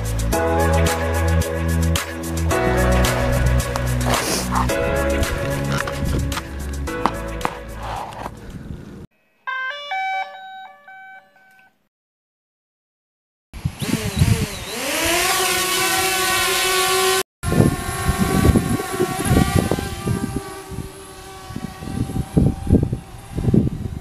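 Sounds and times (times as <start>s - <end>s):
drone propellers whining: 2.5s - 8.6s, 13.6s - 24.0s.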